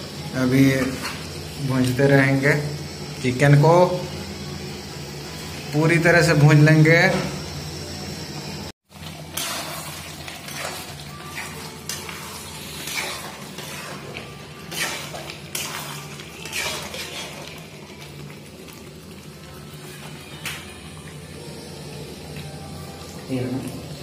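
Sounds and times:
masala sizzling: 0.0 - 24.0
ladle scraping pan: 9.2 - 17.6.

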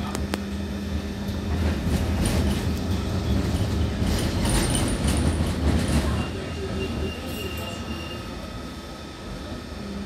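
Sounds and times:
tram rumbling on rails: 0.0 - 10.0
faint high wheel squeal: 6.0 - 8.5.

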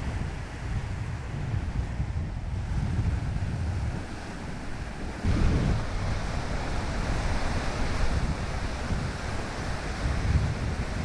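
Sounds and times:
wind buffeting microphone: 0.0 - 11.0
waves breaking on pebble beach: 3.2 - 11.0.

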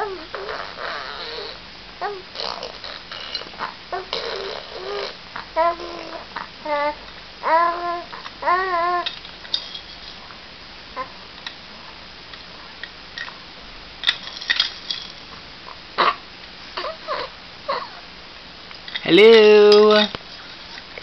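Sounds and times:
baby cooing: 0.0 - 9.1, 11.0 - 11.2, 16.8 - 18.0.

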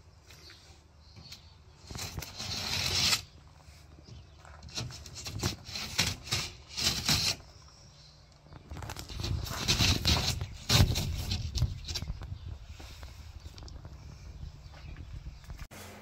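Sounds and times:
utility knife slicing paper: 1.9 - 3.3
knocks and rustles of board: 4.0 - 7.5, 8.5 - 13.9.

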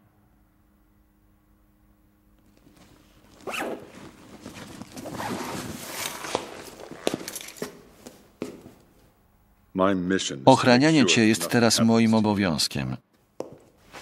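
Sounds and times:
fabric rustling: 2.4 - 9.0, 13.6 - 14.0
zipper rasp: 3.3 - 7.4.

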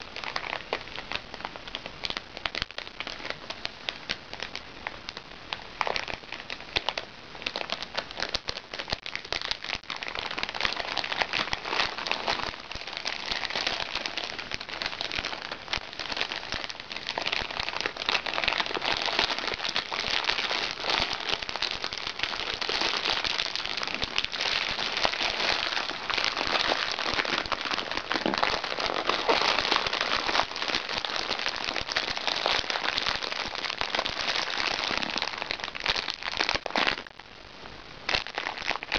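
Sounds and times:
plastic packaging crinkling: 0.0 - 37.2, 38.1 - 38.9.

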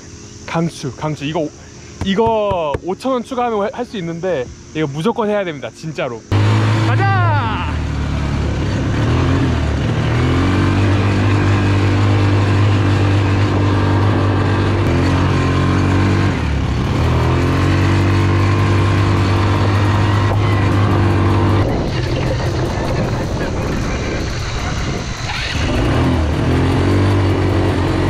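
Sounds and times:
quad bike engine under throttle: 6.3 - 28.0.

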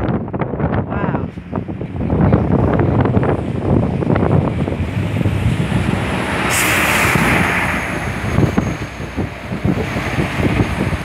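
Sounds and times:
wind buffeting microphone: 0.0 - 11.0
hissing rush: 2.5 - 11.0.

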